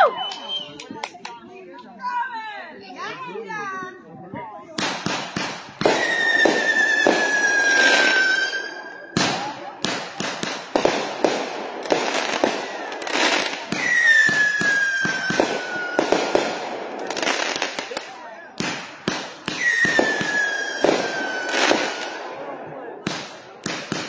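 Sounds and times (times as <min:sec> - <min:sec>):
falling firework whistle: 0:00.0 - 0:00.9, 0:05.9 - 0:09.5, 0:13.8 - 0:16.3, 0:19.5 - 0:22.0
fireworks launching and bursting: 0:04.8 - 0:24.0.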